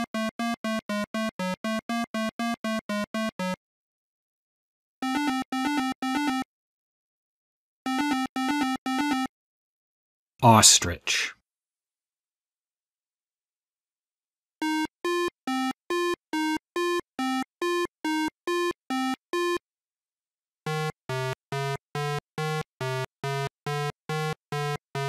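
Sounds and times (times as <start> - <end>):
chiptune beeps: 5.0 - 6.4, 7.9 - 9.3, 14.6 - 19.6.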